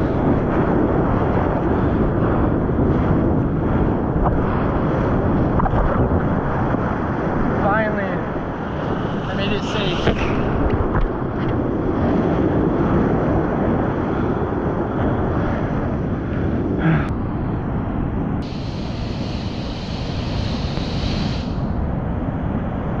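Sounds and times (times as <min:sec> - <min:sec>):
surf rushing on shore: 0:06.5 - 0:10.9, 0:18.4 - 0:21.9
breaking wave hiss: 0:18.4 - 0:21.8.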